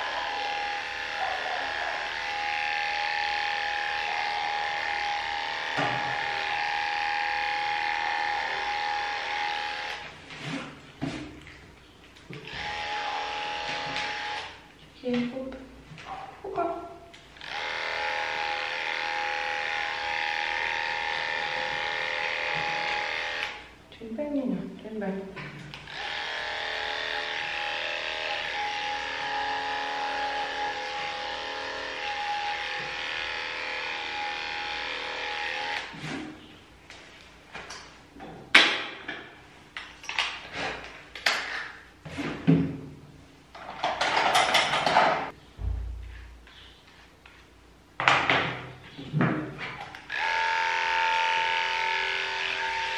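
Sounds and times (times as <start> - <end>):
electric clipper buzzing: 0.0 - 10.2, 12.4 - 14.7, 17.3 - 23.8, 25.7 - 36.0, 49.8 - 52.9
tools knocking and clicking: 43.6 - 45.3.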